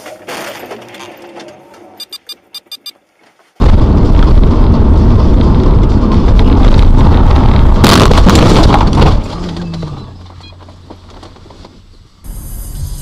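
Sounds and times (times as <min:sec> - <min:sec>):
short high beeps: 0:02.0 - 0:03.0
distorted car driving rumble: 0:03.6 - 0:13.0.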